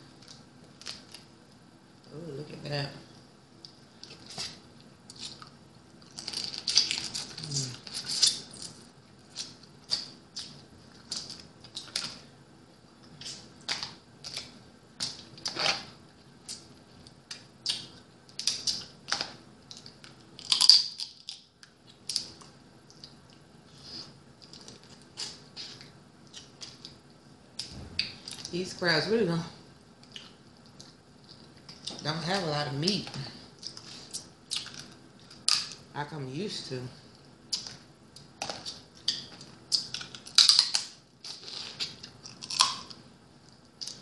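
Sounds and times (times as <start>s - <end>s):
crab shells cracking: 17.3s - 22.4s, 37.5s - 43.0s.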